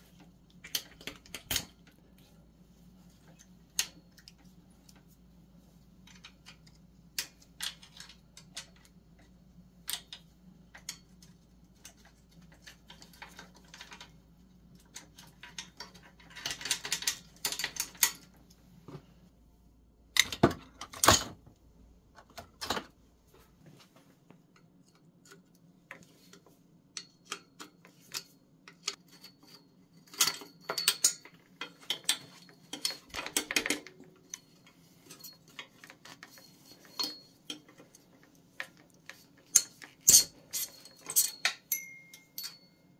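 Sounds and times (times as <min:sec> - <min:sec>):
wrenches clinking on steel: 0:14.7 - 0:18.4, 0:26.9 - 0:42.9.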